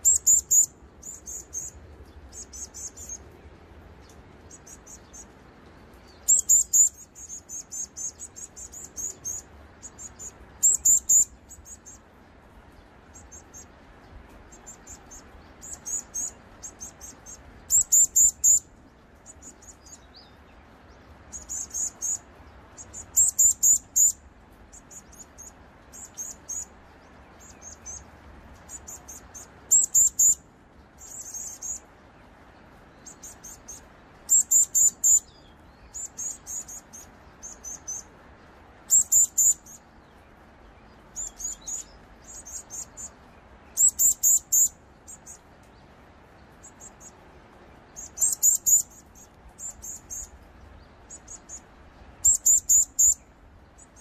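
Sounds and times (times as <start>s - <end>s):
nestling high-pitched chirps: 0.0s - 3.2s, 6.1s - 12.0s, 14.5s - 18.6s, 22.8s - 26.7s, 28.7s - 30.4s, 33.0s - 38.1s, 38.9s - 39.8s, 41.1s - 45.4s, 48.0s - 50.4s, 52.2s - 53.2s.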